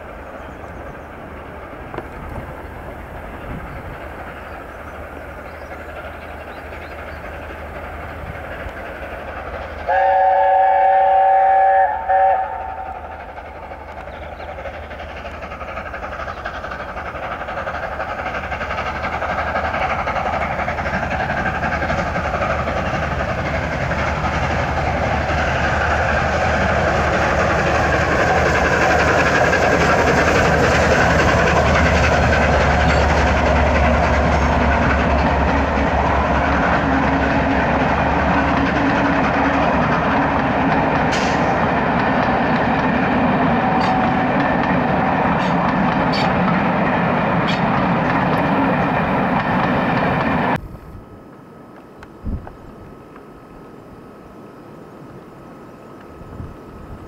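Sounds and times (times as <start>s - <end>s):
steam train passing: 0.0s - 57.0s
steam locomotive chime whistle: 9.9s - 13.2s, 43.5s - 44.3s.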